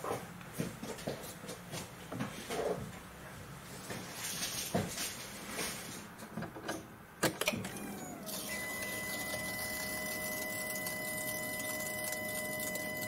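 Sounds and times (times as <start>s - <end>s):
electric fuel pump whine: 7.4s - 13.0s.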